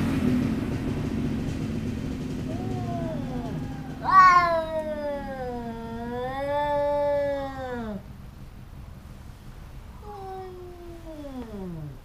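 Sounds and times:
cats yowling: 2.4 - 8.1, 10.0 - 12.0.

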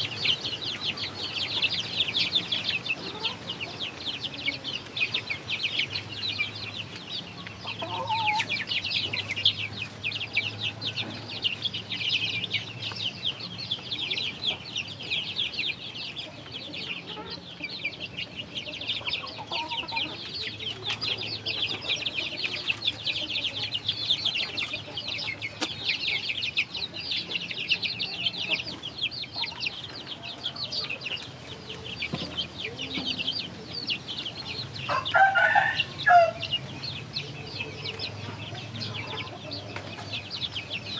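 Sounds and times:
chicks cheeping: 0.0 - 40.9
chicken squawk: 7.6 - 8.5, 34.9 - 36.5.

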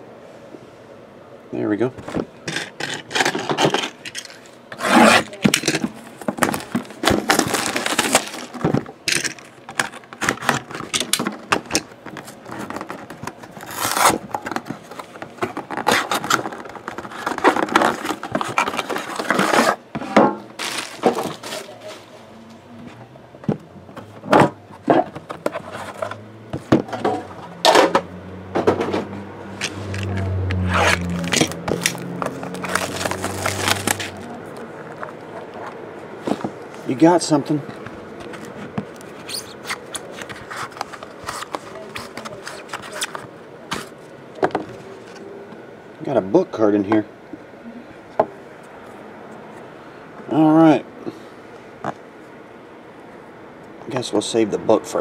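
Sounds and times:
steady low hum: 0.0 - 55.0
cardboard scraping and sliding: 4.7 - 5.4, 12.2 - 22.2, 24.7 - 27.8, 28.8 - 36.6.

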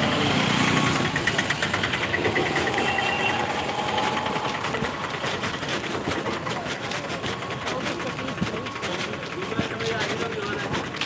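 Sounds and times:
engine idling with clatter: 0.0 - 11.0.

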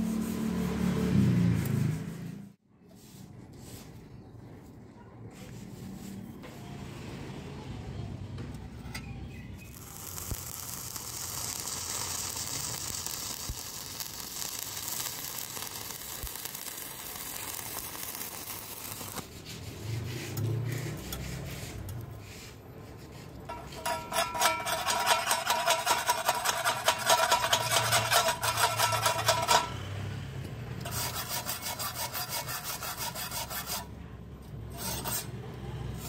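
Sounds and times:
welding arc crackling and hissing: 9.7 - 19.4
chipping hammer tapping metal: 23.5 - 29.8.

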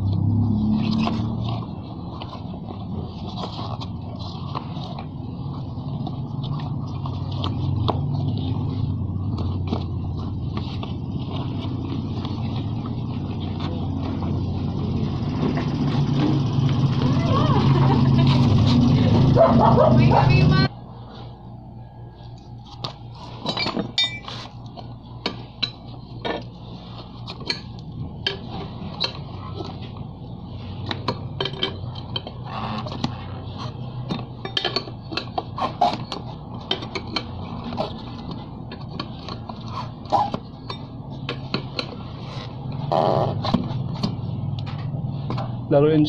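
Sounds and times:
tire lever clinking on wheel rim: 23.5 - 24.3.

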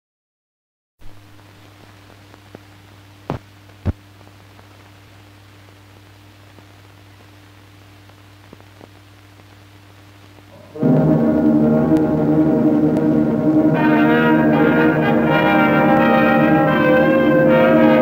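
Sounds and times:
film soundtrack hiss: 1.0 - 18.0
faint clicks: 8.0 - 10.6
low hum: 10.5 - 18.0.

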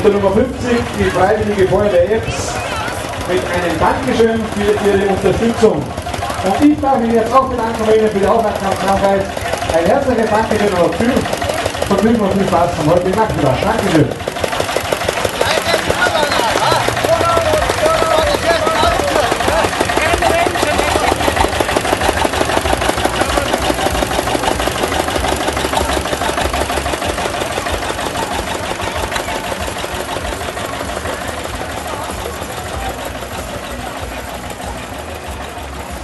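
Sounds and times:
tractor engine chugging: 0.0 - 36.0.

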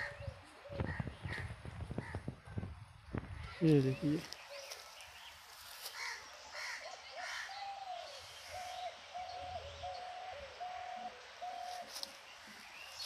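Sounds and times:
harsh caw-like bird calls: 5.9 - 9.3.

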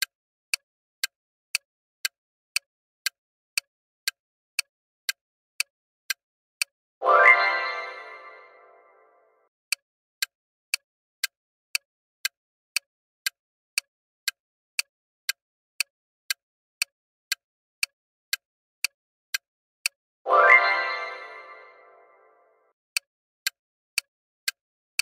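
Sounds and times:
countdown timer ticks: 4.6 - 10.8, 17.8 - 24.6.

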